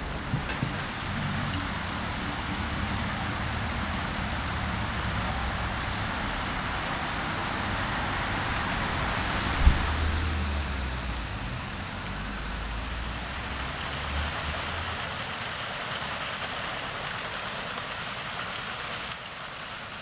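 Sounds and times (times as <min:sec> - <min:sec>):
low rumble: 0:00.0 - 0:04.9
fountain water splashing: 0:00.0 - 0:20.0.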